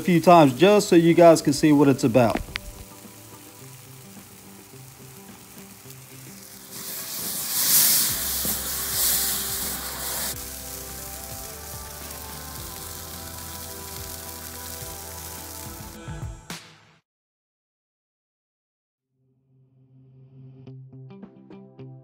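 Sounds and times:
water sizzling on hot grill: 0:00.0 - 0:16.0
background music: 0:00.0 - 0:17.0, 0:20.7 - 0:22.0.

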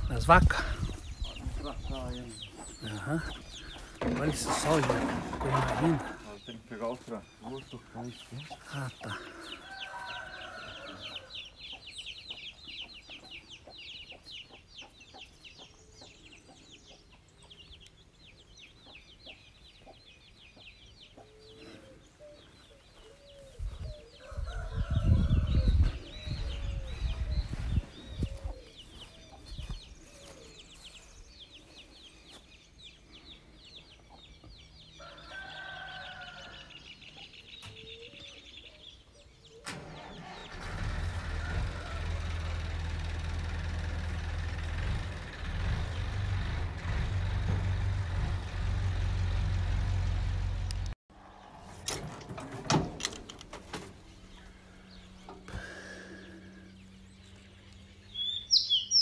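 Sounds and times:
chickens clucking: 0:00.0 - 0:36.3
rooster crowing: 0:09.4 - 0:11.4, 0:24.2 - 0:26.1, 0:35.0 - 0:36.8, 0:41.0 - 0:42.6
high-pitched chirping chatter: 0:57.4 - 0:59.0.

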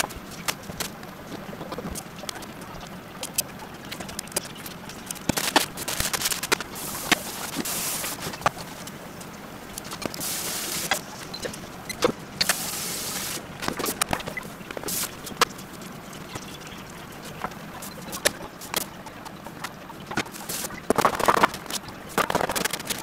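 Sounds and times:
hiss bursts: 0:06.7 - 0:08.7, 0:10.1 - 0:11.2, 0:12.4 - 0:13.4, 0:14.9 - 0:15.4.

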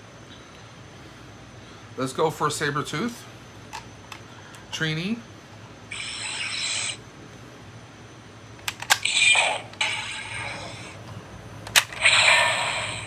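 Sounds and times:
toy electronic sound effects: 0:05.9 - 0:07.0, 0:08.9 - 0:11.0, 0:11.9 - 0:13.0.

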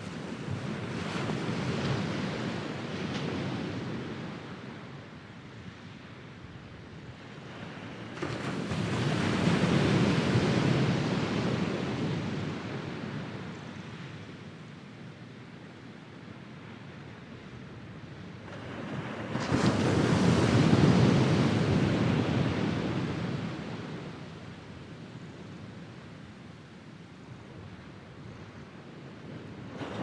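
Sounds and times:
waves breaking on sandy beach: 0:00.0 - 0:15.3, 0:16.4 - 0:30.0.

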